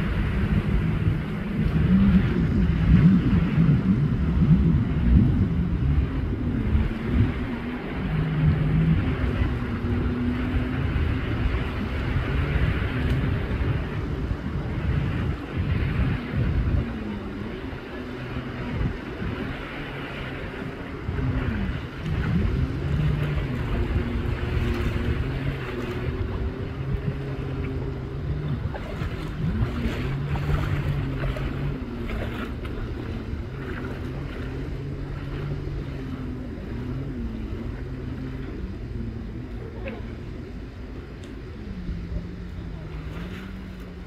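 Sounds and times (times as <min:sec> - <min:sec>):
jet ski engine: 0:00.0 - 0:44.0
wind on microphone: 0:00.0 - 0:44.0
lapping water: 0:21.1 - 0:38.7, 0:39.3 - 0:40.3.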